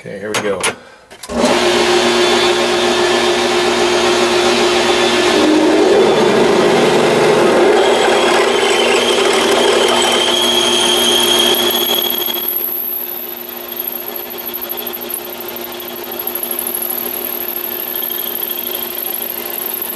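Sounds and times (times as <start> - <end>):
metal lathe running: 1.3 - 19.9
gear train whine: 2.4 - 19.9
thin high whine: 3.8 - 19.9
drill bit boring into metal: 6.8 - 19.9.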